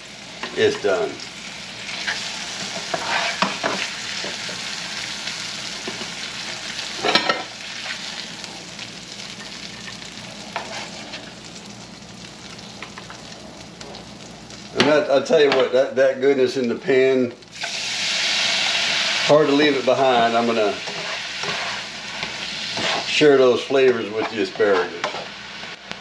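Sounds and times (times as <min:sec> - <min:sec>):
fish sizzling in a frying pan: 0:00.0 - 0:15.1, 0:17.4 - 0:26.0
spatula scraping a pan: 0:02.0 - 0:04.3, 0:10.6 - 0:11.4, 0:20.1 - 0:23.3, 0:24.0 - 0:25.4.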